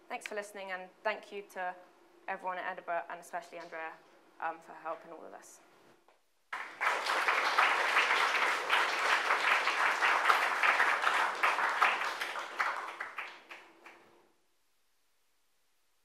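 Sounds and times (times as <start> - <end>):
audience applauding: 6.5 - 14.0.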